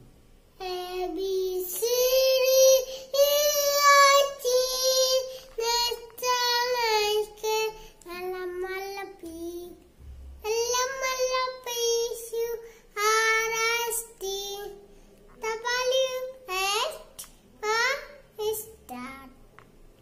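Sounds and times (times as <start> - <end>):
boy singing: 0.6 - 9.8, 10.4 - 14.8, 15.4 - 19.3.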